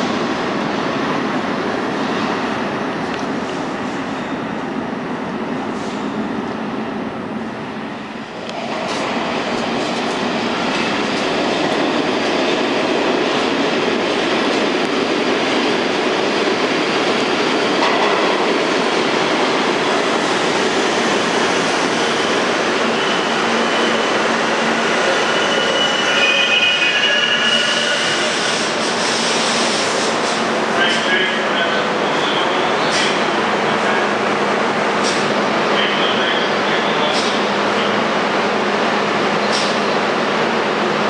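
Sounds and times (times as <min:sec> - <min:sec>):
train wheels rumbling on rails: 0:00.0 - 0:41.0
brake and wheel squeal: 0:25.0 - 0:28.4.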